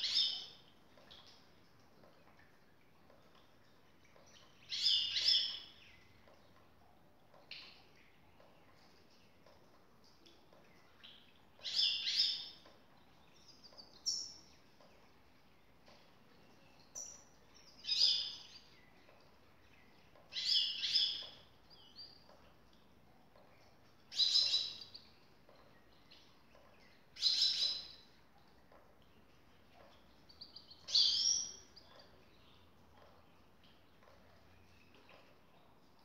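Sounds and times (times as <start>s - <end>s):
goldfinch singing: 30.3s - 32.4s.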